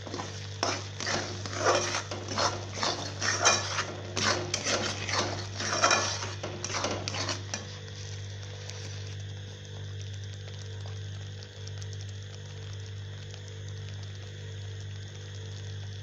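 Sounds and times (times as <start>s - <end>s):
metal ladle scraping pot: 0.0s - 8.2s.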